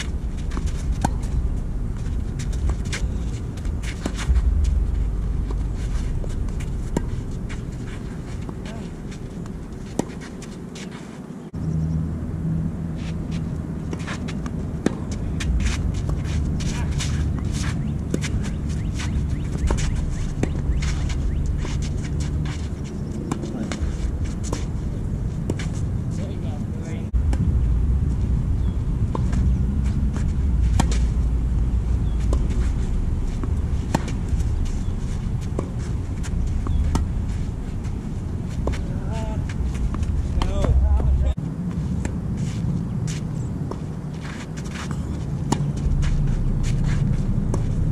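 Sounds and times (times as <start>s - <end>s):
tennis ball hitting racket: 0.0s - 1.4s, 2.0s - 10.9s, 13.0s - 25.8s, 30.1s - 31.2s, 32.0s - 41.1s, 43.1s - 47.9s
steady low rumble: 0.0s - 10.7s, 11.5s - 47.9s
shoes scuffing on court: 0.0s - 11.4s, 13.0s - 26.4s, 31.9s - 47.9s
tennis racket striking ball: 32.0s - 37.2s.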